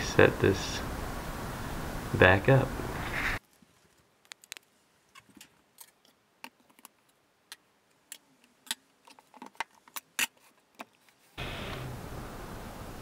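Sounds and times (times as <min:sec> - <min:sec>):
steady noise: 0:00.0 - 0:03.4.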